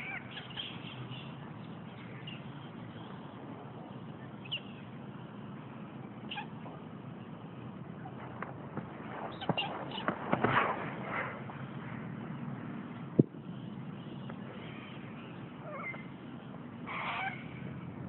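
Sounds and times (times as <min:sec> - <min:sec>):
high-pitched animal calls: 0:00.0 - 0:00.7, 0:06.3 - 0:06.6, 0:16.9 - 0:17.6
steady background hiss: 0:00.0 - 0:18.0.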